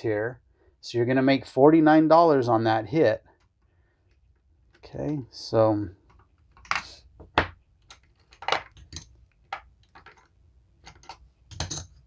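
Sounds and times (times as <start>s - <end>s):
casino chips clicking and clinking: 7.8s - 12.0s.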